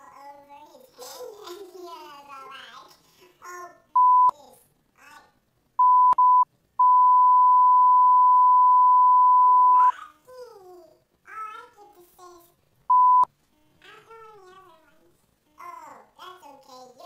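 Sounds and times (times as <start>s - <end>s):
child speaking: 0.0s - 5.4s, 9.8s - 12.6s, 13.8s - 17.0s
censor bleeps: 4.0s - 4.3s, 5.8s - 9.9s, 12.9s - 13.3s.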